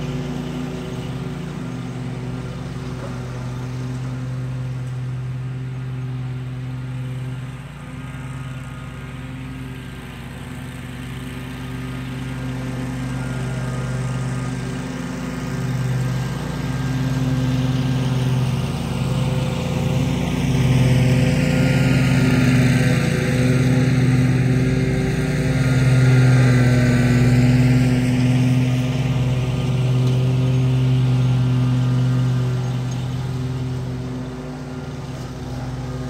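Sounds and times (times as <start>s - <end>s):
lawn mower engine running: 0.0s - 36.0s.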